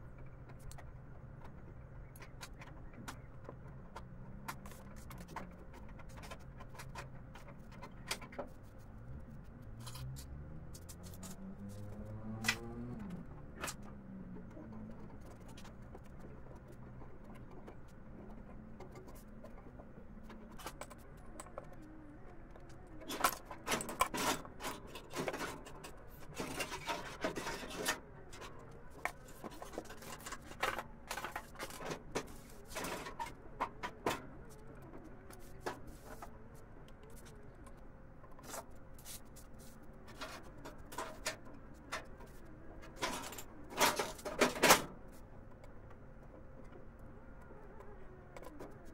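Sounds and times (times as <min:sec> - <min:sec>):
metal parts clinking and scraping: 0:09.7 - 0:12.7, 0:23.0 - 0:36.4, 0:38.3 - 0:45.2.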